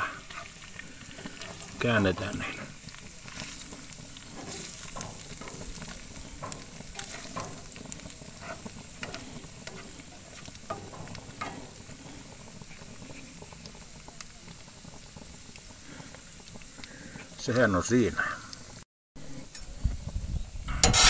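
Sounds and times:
spatula scraping a frying pan: 0:00.0 - 0:13.5, 0:20.7 - 0:21.0
macaroni sizzling in butter: 0:00.0 - 0:21.0.

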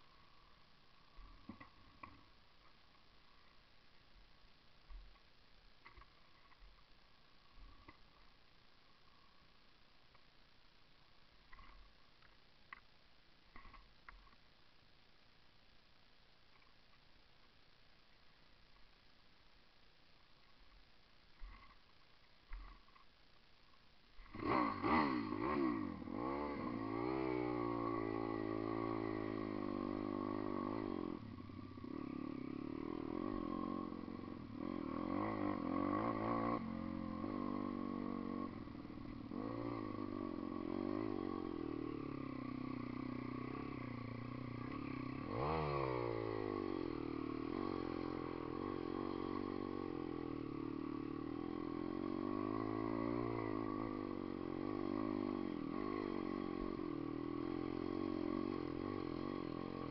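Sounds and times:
dirt bike engine revving: 0:24.2 - 0:59.9.

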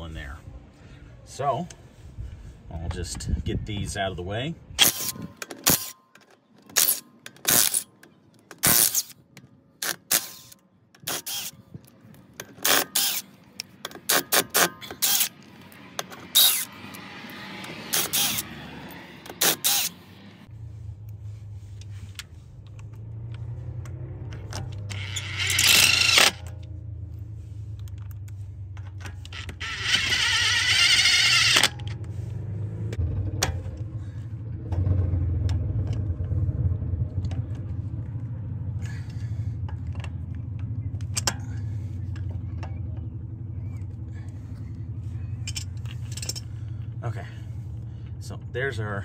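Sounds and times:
pliers clicking and scraping metal: 0:04.8 - 0:20.0, 0:21.8 - 0:26.8, 0:27.7 - 0:32.1, 0:39.1 - 0:43.1
steady low hum: 0:19.2 - 0:49.0.

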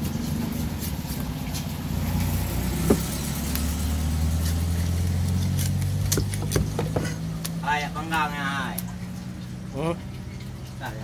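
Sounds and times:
vehicle engine humming: 0:00.0 - 0:11.0
knife striking chopping block: 0:02.8 - 0:03.2, 0:05.5 - 0:07.2.

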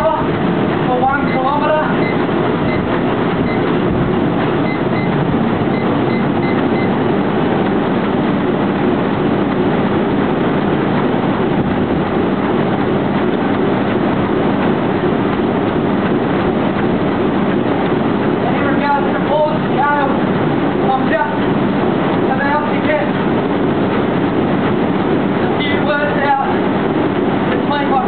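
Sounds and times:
treadmill belt rumble: 0:00.0 - 0:28.0
short high beeps: 0:01.2 - 0:03.7, 0:04.6 - 0:07.0.

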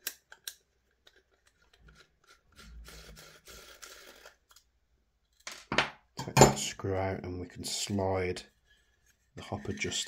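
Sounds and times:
soft metal scraping: 0:08.5 - 0:10.0.

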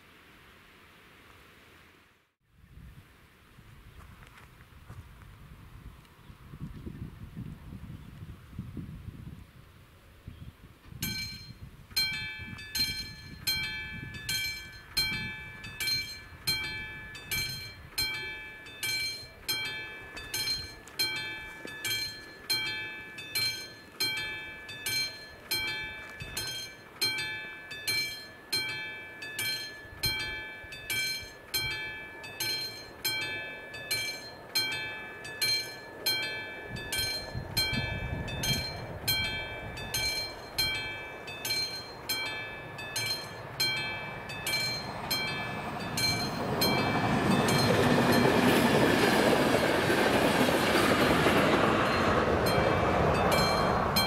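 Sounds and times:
level crossing warning bell: 0:11.0 - 0:54.0.

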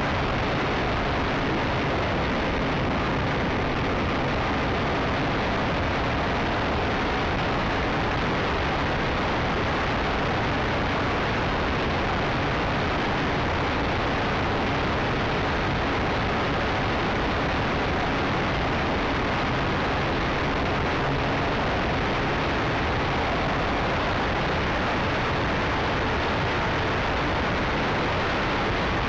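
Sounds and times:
engine and propeller noise: 0:00.0 - 0:29.0.

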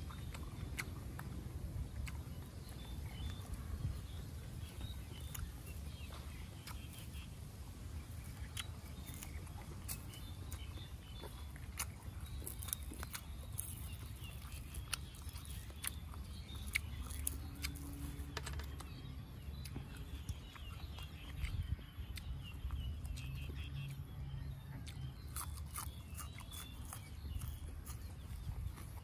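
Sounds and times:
chewing crunchy raw vegetables: 0:00.0 - 0:29.0
low steady rumble: 0:00.0 - 0:29.0.

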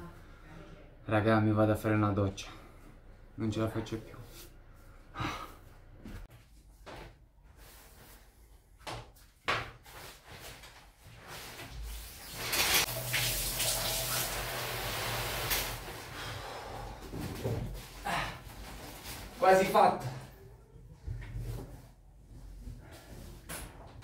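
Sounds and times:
shower water rushing: 0:12.0 - 0:16.2.

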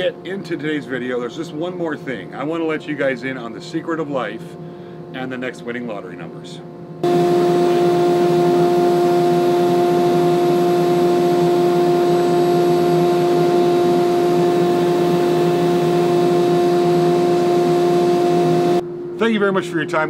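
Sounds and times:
loud machine roar: 0:07.0 - 0:18.8.

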